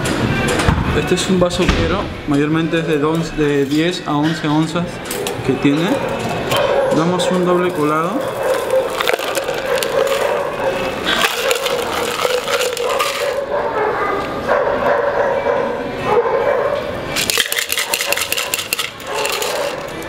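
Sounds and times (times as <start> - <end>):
ice rattling in metal shaker: 7.4 - 13.5, 17.2 - 20.0.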